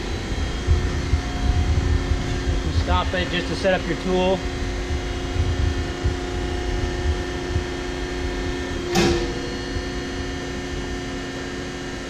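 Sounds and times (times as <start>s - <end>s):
hydraulic pump humming: 0.0s - 12.0s
sharp click: 8.9s - 9.6s.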